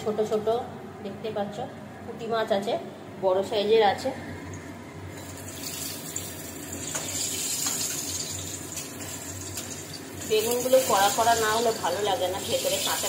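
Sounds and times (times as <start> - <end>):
eggplant sizzling in hot oil: 5.1 - 13.0.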